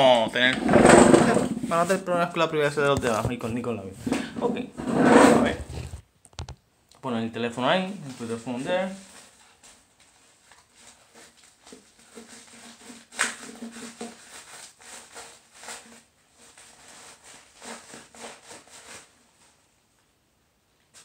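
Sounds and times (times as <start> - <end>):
paper crinkling: 8.0 - 19.6
knife cutting through a mailer: 10.8 - 19.2.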